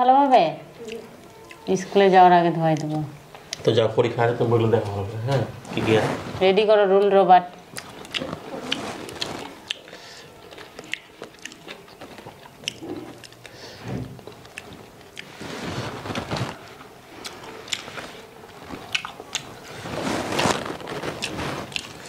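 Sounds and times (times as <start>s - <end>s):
chewing and mouth sounds: 0.8s - 2.0s, 7.7s - 15.4s, 17.2s - 19.6s.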